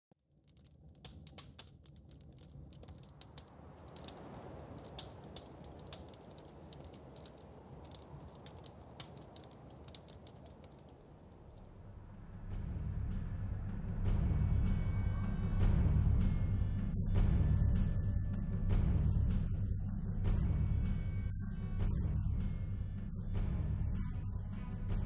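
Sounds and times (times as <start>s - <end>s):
campfire crackling and popping: 0.3s - 12.1s
steady low rumble: 0.9s - 25.0s.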